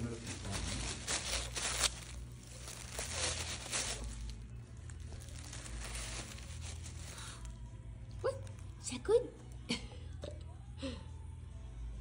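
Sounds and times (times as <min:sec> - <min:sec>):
tissue paper rustling and tearing: 0:00.0 - 0:07.6.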